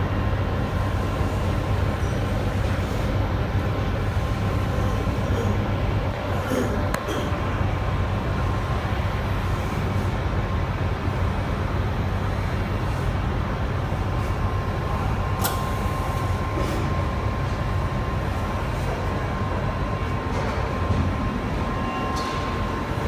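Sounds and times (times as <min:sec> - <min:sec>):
faint machine whine: 0:00.0 - 0:23.0
packing machine humming: 0:00.0 - 0:23.0
sharp click: 0:15.4 - 0:15.7.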